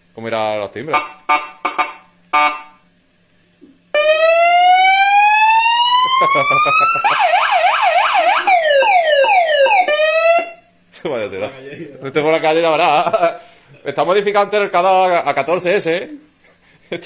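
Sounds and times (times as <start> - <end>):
electronic siren horn: 0.9 - 2.8, 3.9 - 10.7.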